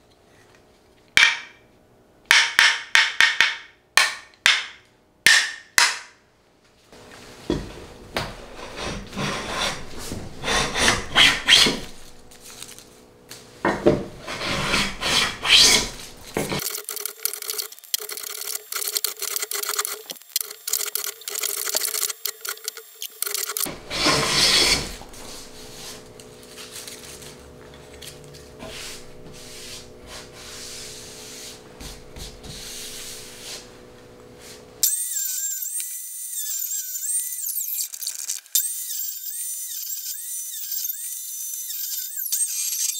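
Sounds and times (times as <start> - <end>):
mallet tapping wooden plane: 2.3 - 6.1
hand plane shaving wood: 8.4 - 12.0, 13.9 - 16.6, 23.6 - 27.4, 28.4 - 33.7.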